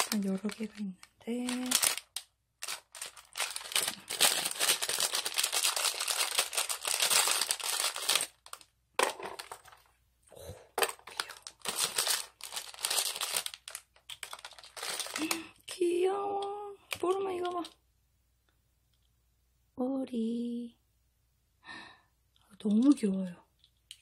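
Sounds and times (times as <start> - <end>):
plastic bag crinkling: 0.0 - 9.9, 10.8 - 15.5.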